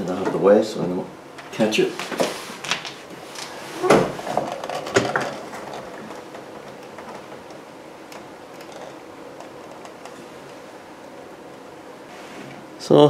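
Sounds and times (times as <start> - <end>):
faint clicks and rustles: 1.3 - 12.7.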